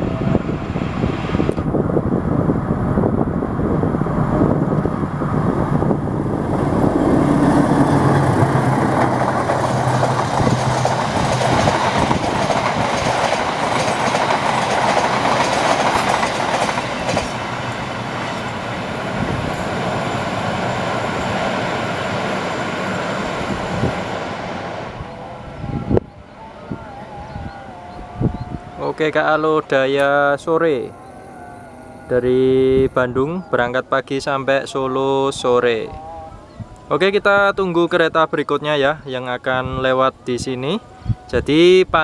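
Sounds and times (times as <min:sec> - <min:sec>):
locomotive engine drone: 0:00.0 - 0:35.0
train wheels on rails: 0:05.2 - 0:25.0.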